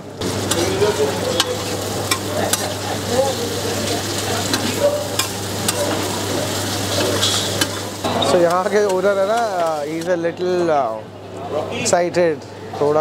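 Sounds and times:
chicken sizzling in oil: 0.0s - 10.3s
metal spatula scraping griddle: 0.5s - 10.1s.

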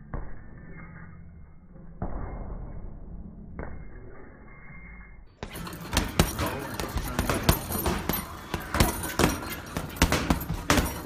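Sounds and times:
low hum: 0.0s - 11.0s
punches thudding on punching bag: 5.4s - 11.0s.

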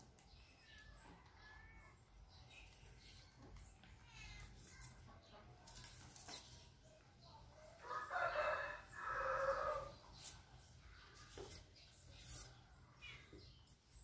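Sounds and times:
rooster crowing: 7.8s - 9.9s.

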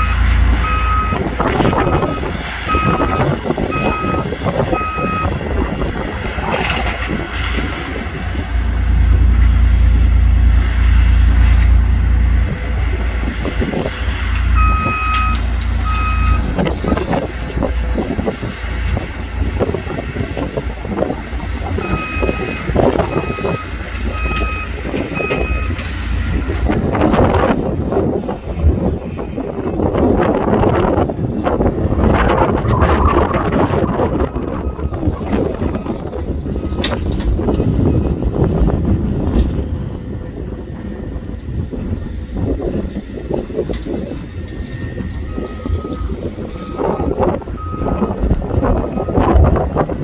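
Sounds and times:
heavy engine drone: 0.0s - 50.0s
backup alarm beeps: 0.6s - 5.4s, 14.6s - 17.1s, 21.8s - 25.7s, 44.7s - 48.2s.

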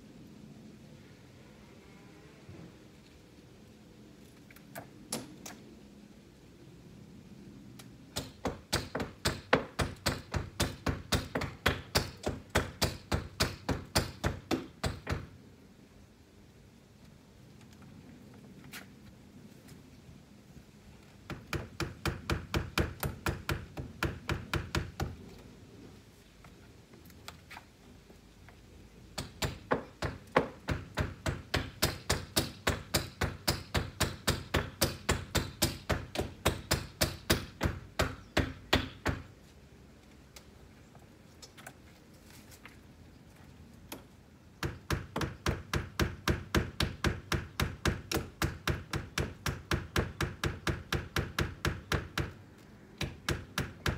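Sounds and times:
hammer striking nails: 8.2s - 15.3s, 29.2s - 39.3s, 44.6s - 52.4s.

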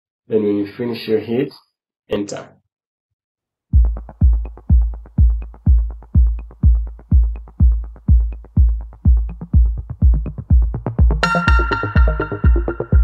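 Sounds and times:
deep kick drum: 3.8s - 13.0s
electronic music: 3.8s - 13.0s.

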